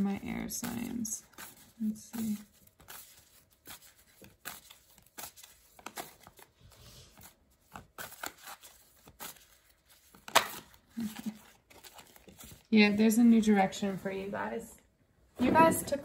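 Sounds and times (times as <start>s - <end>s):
cards being shuffled: 0.0s - 12.7s
card snap: 10.2s - 10.7s.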